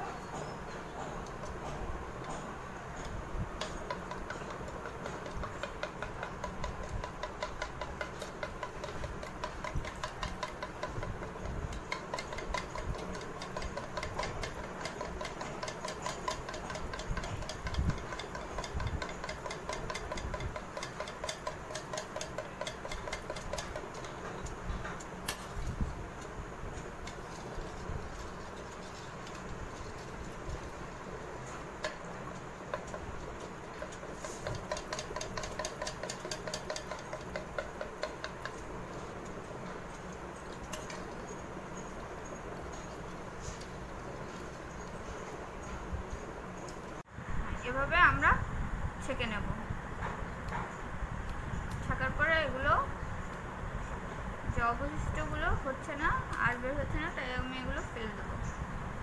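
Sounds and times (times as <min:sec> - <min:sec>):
spoon clicking against bowl: 0:11.7 - 0:24.5, 0:33.7 - 0:38.6.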